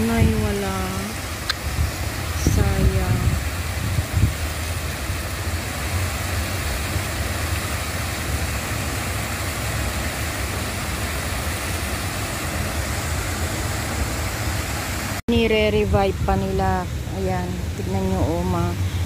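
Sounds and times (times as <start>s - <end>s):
water rushing over waterfalls: 0.0s - 15.2s.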